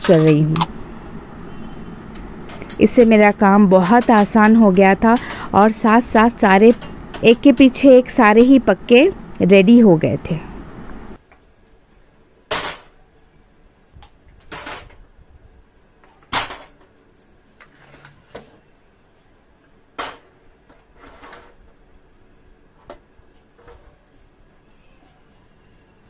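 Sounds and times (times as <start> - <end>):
pressure cookers clanking on metal: 2.5 - 8.8.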